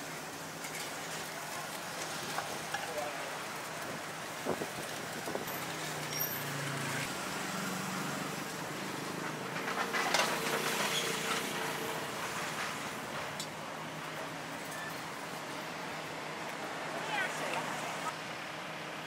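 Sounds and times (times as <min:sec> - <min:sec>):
traffic passing: 0:00.0 - 0:19.0
engine hum: 0:00.4 - 0:19.0
clicks and clatter: 0:09.5 - 0:11.5.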